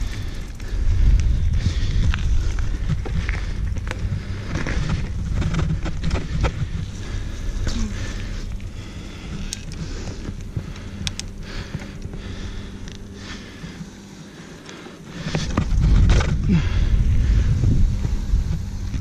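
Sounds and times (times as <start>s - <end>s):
wind buffeting microphone: 0.0s - 14.1s, 15.1s - 19.0s
sharp clicks: 9.4s - 12.1s.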